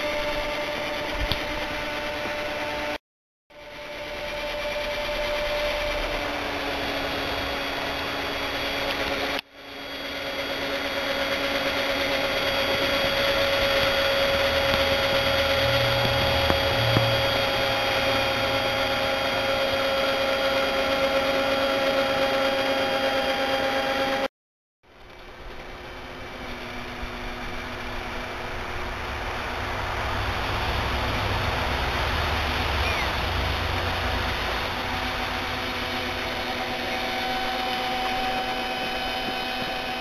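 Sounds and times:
cordless drill whining: 0:03.6 - 0:24.2, 0:31.6 - 0:40.0.

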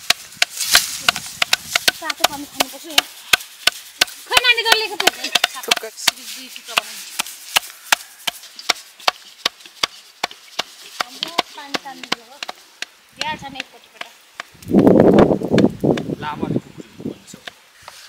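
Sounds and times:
knife chopping on wooden board: 0:01.1 - 0:12.9.

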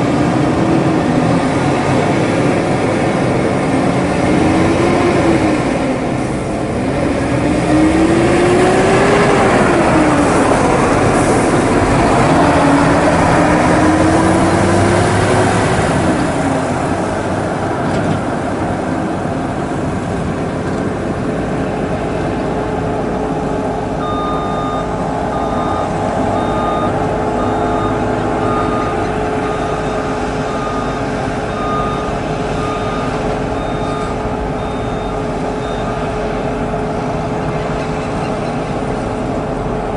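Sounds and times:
truck diesel engine revving: 0:00.0 - 0:39.9
reversing beeper: 0:24.0 - 0:36.2.

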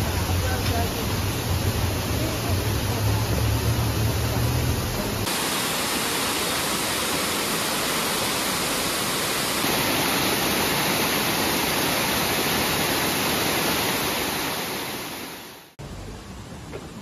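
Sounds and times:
river rushing over rocky cascade: 0:05.2 - 0:15.8.

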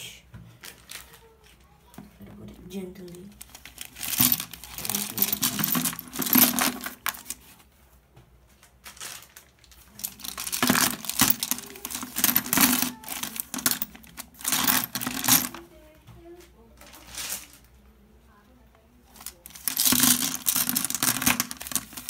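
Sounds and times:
plastic wrapping crinkling: 0:00.6 - 0:01.8, 0:03.1 - 0:05.5, 0:08.5 - 0:12.2
small pieces clinking against bowl: 0:19.3 - 0:22.0.

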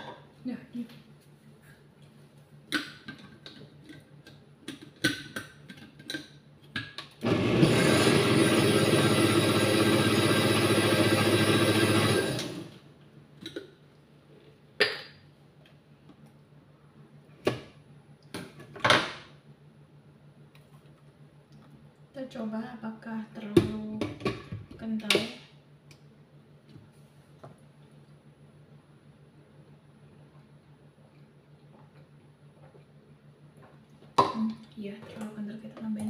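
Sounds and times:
blender motor running: 0:07.2 - 0:12.8.

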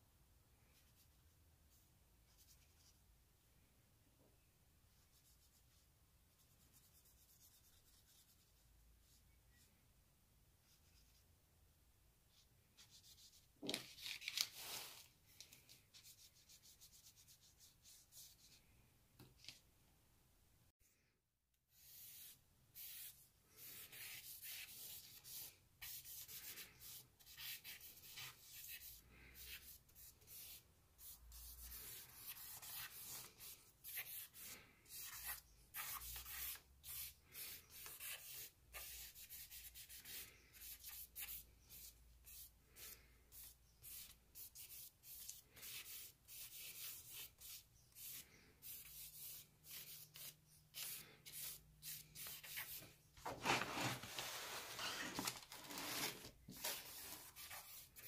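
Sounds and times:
charcoal scratching on paper: 0:21.7 - 0:52.8, 0:55.7 - 0:58.0.

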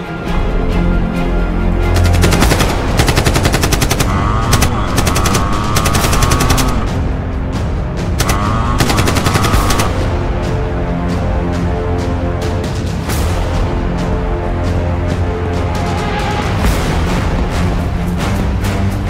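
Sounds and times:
dramatic background music: 0:00.0 - 0:19.0
machine-gun fire: 0:02.0 - 0:06.9, 0:08.2 - 0:10.0.

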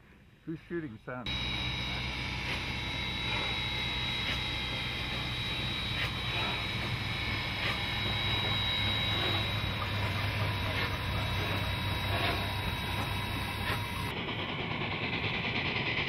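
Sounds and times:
steam locomotive rumbling past: 0:01.3 - 0:16.0.

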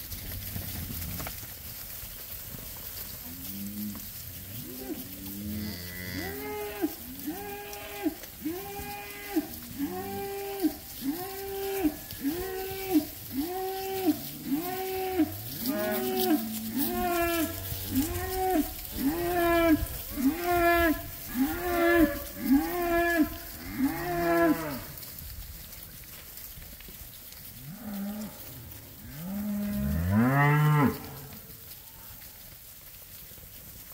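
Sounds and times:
deep cow moo: 0:04.6 - 0:24.9, 0:29.1 - 0:31.2.

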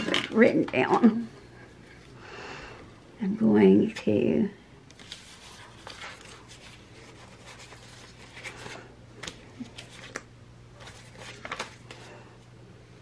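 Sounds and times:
low steady hum: 0:00.0 - 0:13.0
paper rustling and tapping: 0:04.9 - 0:12.1.

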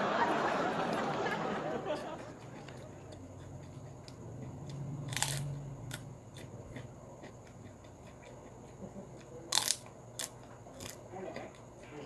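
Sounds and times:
chewing crunches: 0:01.8 - 0:12.0
crisp cracker being bitten: 0:03.6 - 0:08.4, 0:09.5 - 0:11.6.

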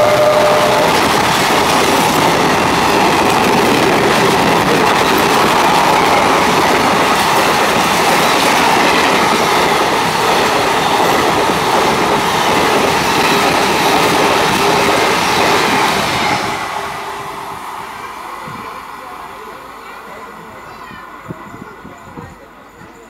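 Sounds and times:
train wheels rumbling over rails: 0:00.0 - 0:23.0.

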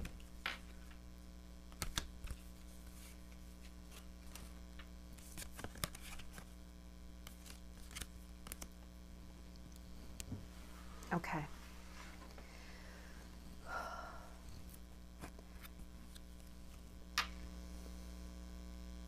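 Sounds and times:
low electrical hum: 0:00.0 - 0:19.0
cards clicking and snapping: 0:01.7 - 0:02.4, 0:03.9 - 0:06.5, 0:07.2 - 0:08.8.

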